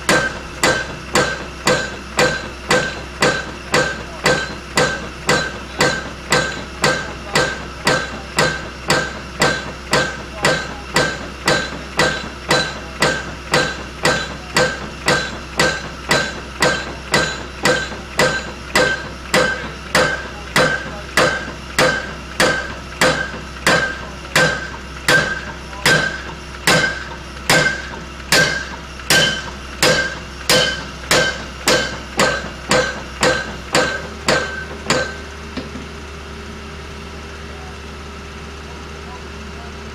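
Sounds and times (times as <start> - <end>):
piling hammer metallic clanks: 0.0 - 35.8
engine hum: 0.0 - 39.9.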